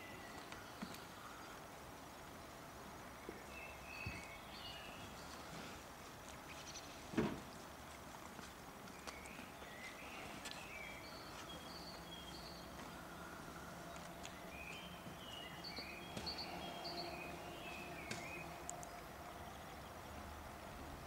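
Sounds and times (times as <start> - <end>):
faint background noise: 0.0 - 21.0
faint clicks: 18.1 - 19.1.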